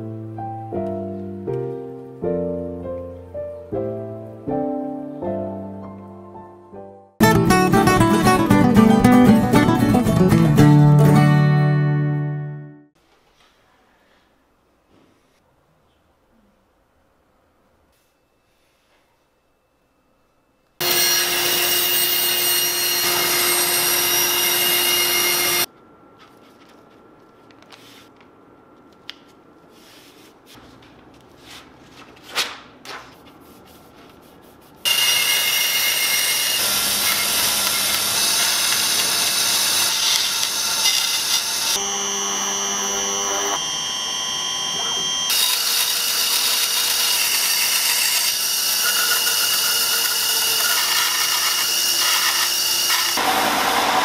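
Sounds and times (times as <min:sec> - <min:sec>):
electric saw cutting wood: 0:20.8 - 0:25.7, 0:34.9 - 0:54.0.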